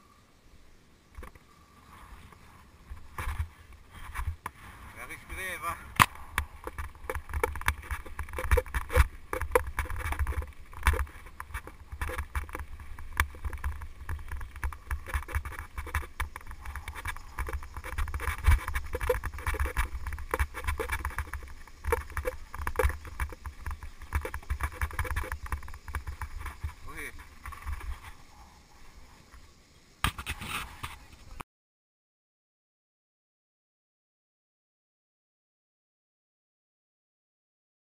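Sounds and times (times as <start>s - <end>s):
tyres on gravel: 1.2s - 31.4s
wind rumble on microphone: 1.8s - 29.4s
bike knocks and rattles: 6.0s - 28.2s.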